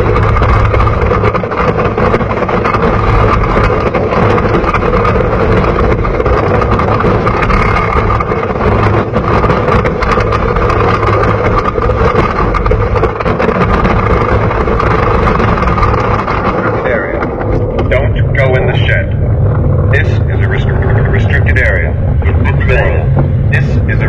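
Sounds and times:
rapid clattering: 0.0s - 24.0s
roller coaster wheels rumbling on rails: 0.0s - 24.0s.

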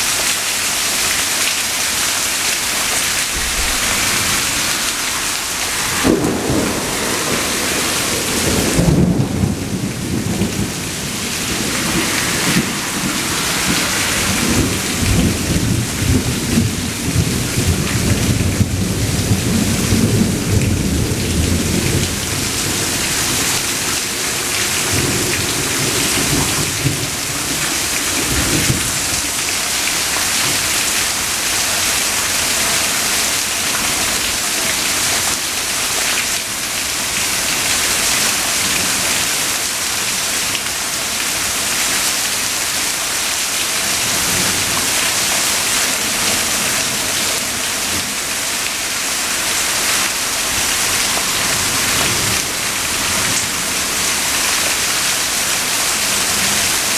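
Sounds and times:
steady rain falling: 0.0s - 56.9s
thunder rolling: 2.7s - 30.6s.

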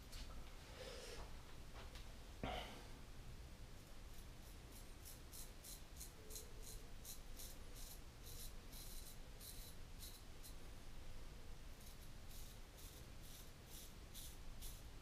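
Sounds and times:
razor scraping stubble: 4.1s - 10.6s, 11.8s - 14.8s.

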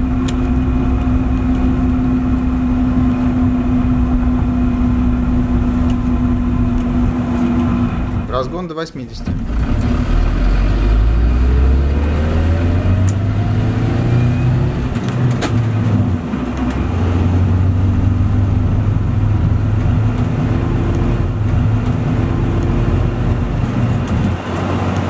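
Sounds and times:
engine and drivetrain drone: 0.0s - 25.0s.

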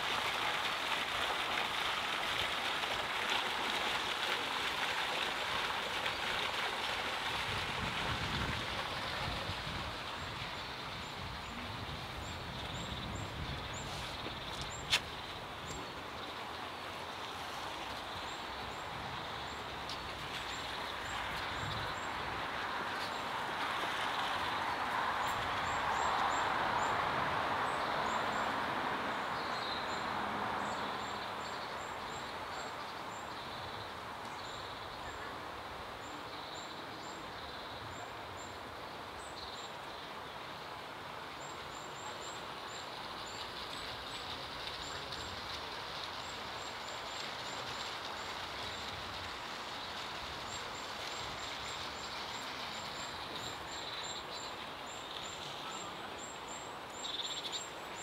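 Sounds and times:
steady outdoor noise: 0.0s - 58.0s.

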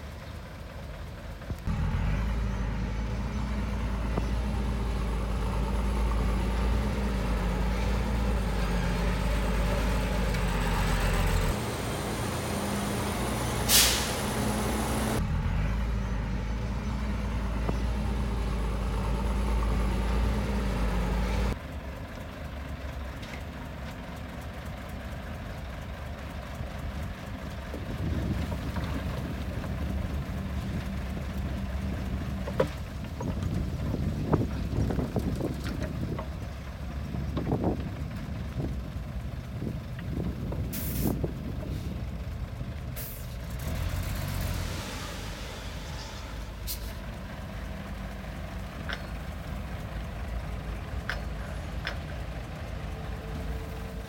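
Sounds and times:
heavy diesel machinery running: 0.0s - 54.0s
compressed air hiss: 13.6s - 14.6s, 40.7s - 41.2s.

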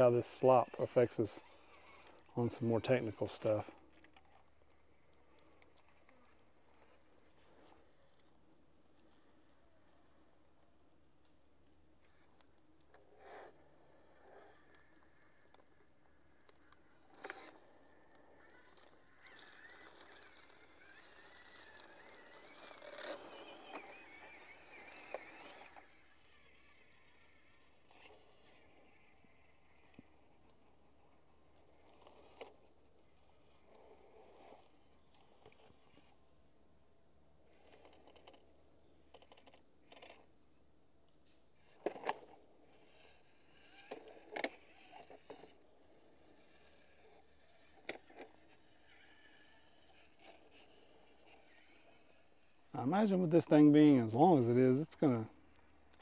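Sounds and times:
toy car motor whining: 0.0s - 10.4s, 11.8s - 36.6s, 37.3s - 40.4s, 41.2s - 56.0s.

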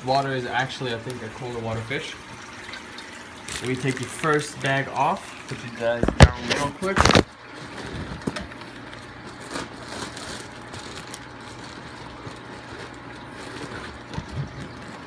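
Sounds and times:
plastic bag rustling: 3.4s - 5.2s, 6.0s - 15.0s.

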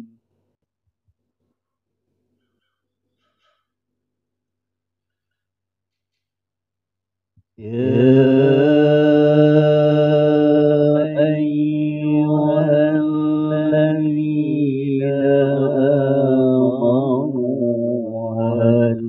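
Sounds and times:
man reciting melodically into microphone: 7.6s - 19.0s.

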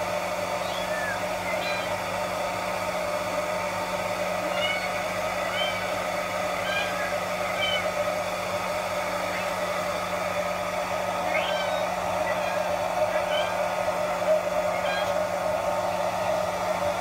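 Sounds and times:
hair dryer whirring: 0.0s - 17.0s
kitten mewing: 0.6s - 2.0s, 4.5s - 5.9s, 6.6s - 8.0s.

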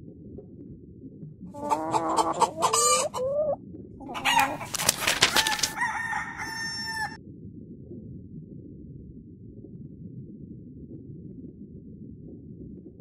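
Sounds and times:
rooster clucking and crowing: 1.6s - 7.2s.

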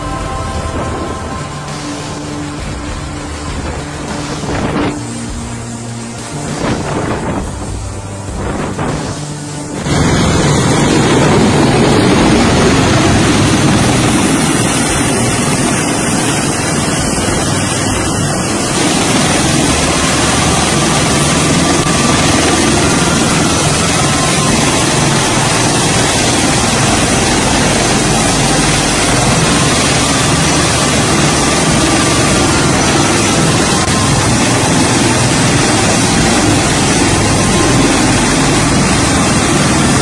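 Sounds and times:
aircraft rotor and turbine noise: 0.0s - 40.0s.

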